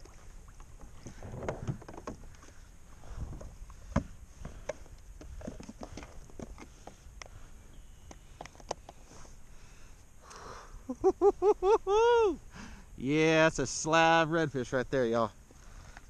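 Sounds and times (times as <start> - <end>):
water splashing: 0.0 - 3.9.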